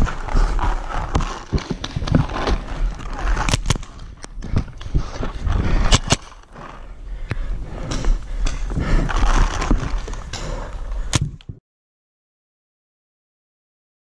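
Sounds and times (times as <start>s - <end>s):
sharp paintball cracks: 0.0s - 4.9s, 5.8s - 6.4s
footfalls: 0.0s - 6.8s.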